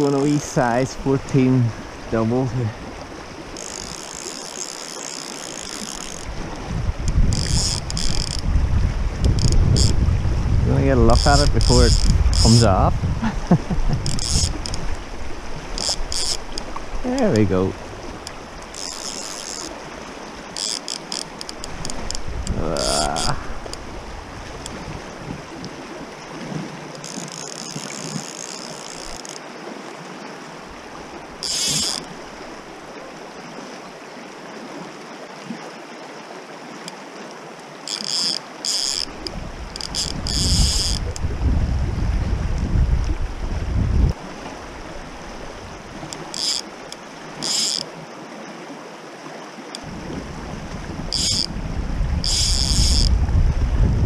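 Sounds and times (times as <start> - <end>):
river running over stones: 0.0 - 41.6, 42.2 - 54.0
fishing reel ratchet whirring: 3.5 - 6.4, 7.1 - 8.5, 9.3 - 10.0, 11.1 - 12.7, 14.0 - 14.9, 15.7 - 16.7, 18.2 - 19.8, 20.5 - 23.8, 27.0 - 29.4, 31.4 - 32.1, 37.9 - 41.2, 46.0 - 47.9, 51.1 - 51.5, 52.2 - 53.1
wind rumbling on microphone: 5.6 - 28.3, 38.9 - 46.6, 49.8 - 54.0.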